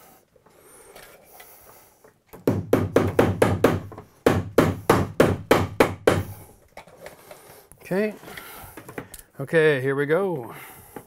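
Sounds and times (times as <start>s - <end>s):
hammer tapping staple into wood: 2.4s - 6.4s.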